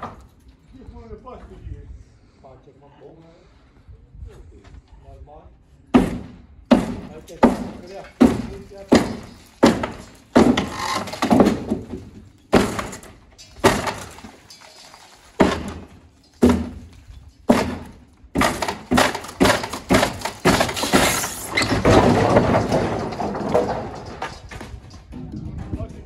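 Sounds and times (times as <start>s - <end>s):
concrete slab crashing down: 6.7s - 25.8s.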